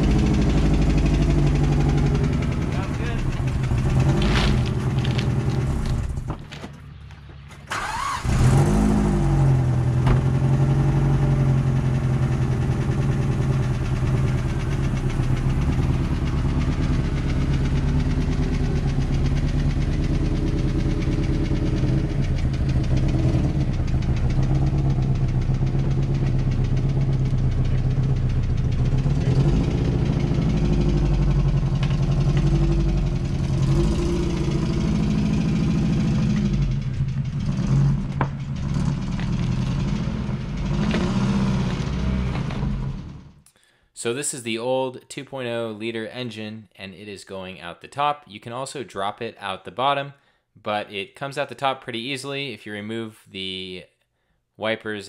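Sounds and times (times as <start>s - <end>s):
car engine starting and idling: 0.0s - 43.4s.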